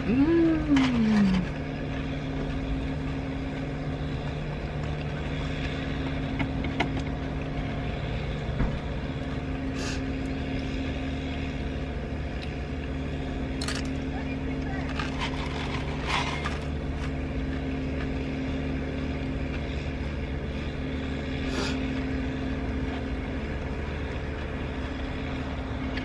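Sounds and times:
vehicle engine idling: 0:00.0 - 0:26.0.

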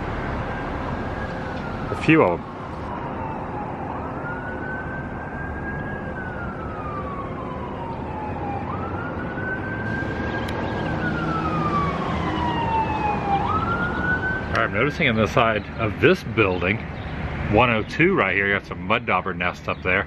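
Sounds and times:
siren wailing: 0:00.0 - 0:15.0.

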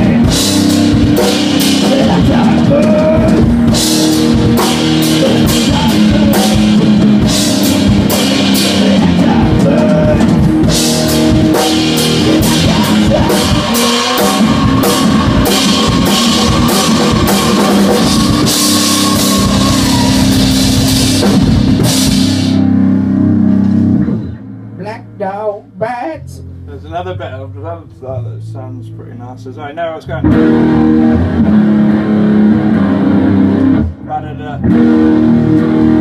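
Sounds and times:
drum kit with cymbal crashes: 0:00.0 - 0:24.0
loud electric guitar: 0:00.0 - 0:25.4, 0:30.1 - 0:36.0.

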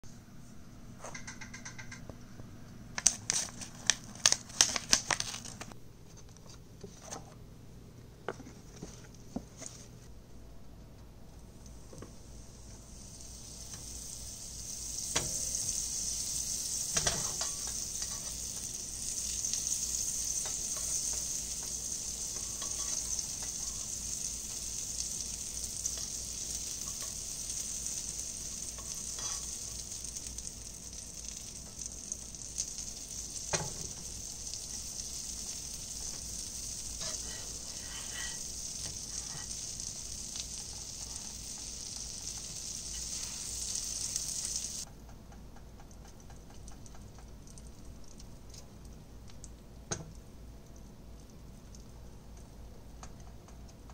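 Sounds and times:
butter sizzling in a frying pan: 0:11.6 - 0:44.9.

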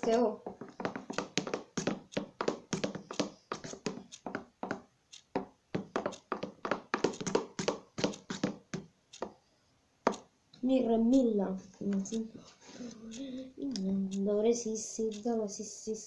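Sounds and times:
stick tapping plastic tub: 0:00.0 - 0:09.4, 0:10.1 - 0:10.3.

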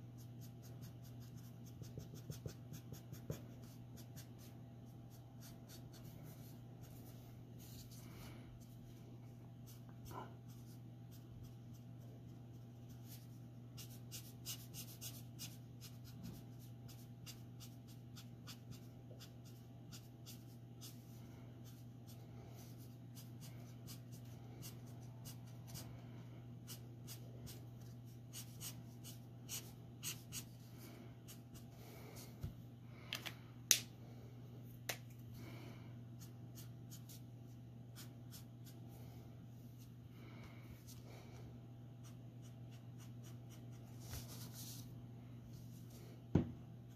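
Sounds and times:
marker scratching on paper: 0:26.7 - 0:30.6.

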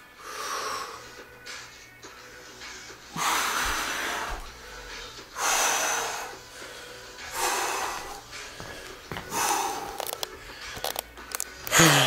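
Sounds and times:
man breathing hard: 0:00.1 - 0:01.4, 0:02.7 - 0:10.8.

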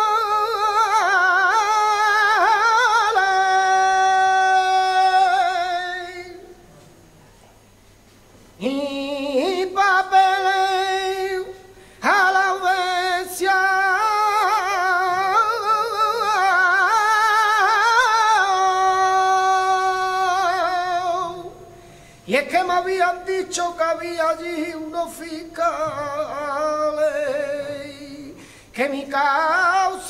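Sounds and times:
man singing melismatic lines: 0:00.0 - 0:06.7, 0:08.6 - 0:30.0
singer breathing: 0:11.7 - 0:12.0, 0:21.7 - 0:22.3, 0:28.3 - 0:28.8.

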